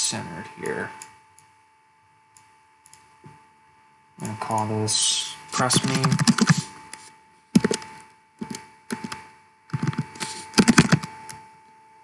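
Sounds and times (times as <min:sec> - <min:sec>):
faint steady tone: 0:00.0 - 0:12.0
computer keyboard typing: 0:05.6 - 0:06.7, 0:07.6 - 0:11.1.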